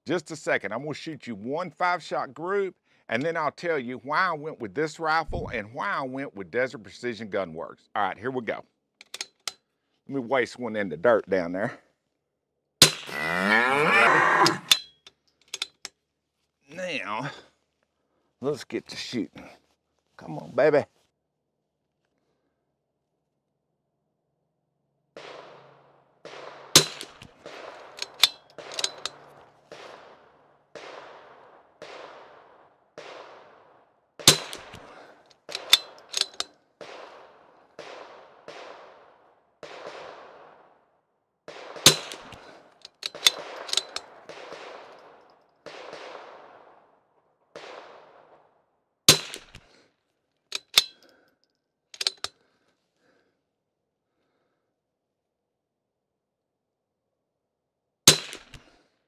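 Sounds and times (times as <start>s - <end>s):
rifle shots cracking: 12.8s - 13.6s, 25.2s - 40.7s, 41.5s - 46.9s, 47.6s - 48.4s, 49.1s - 49.7s, 58.1s - 58.8s.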